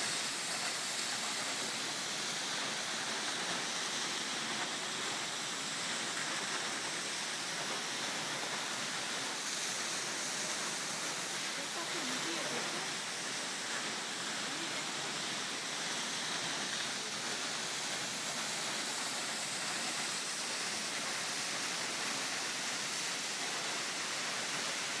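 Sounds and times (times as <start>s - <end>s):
stream running over rocks: 0.0s - 25.0s.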